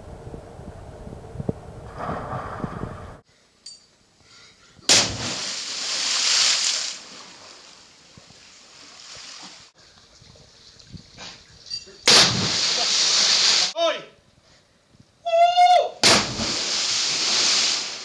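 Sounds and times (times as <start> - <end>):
water splashing: 4.9 - 9.8, 12.1 - 13.8, 16.0 - 18.0.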